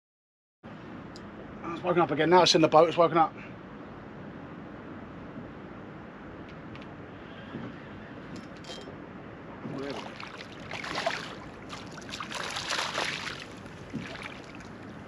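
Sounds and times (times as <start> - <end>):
fish splashing at water surface: 9.8 - 15.0.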